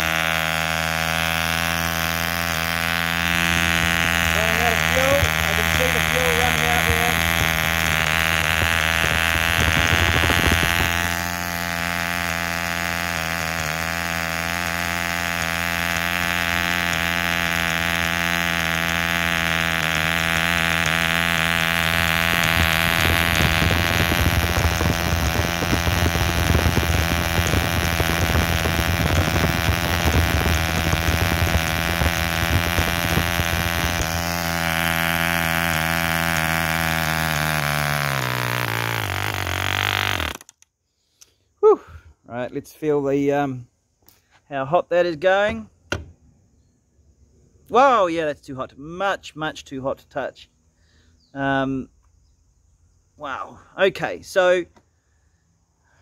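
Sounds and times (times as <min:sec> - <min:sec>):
model aircraft engine running: 0:00.0 - 0:40.6.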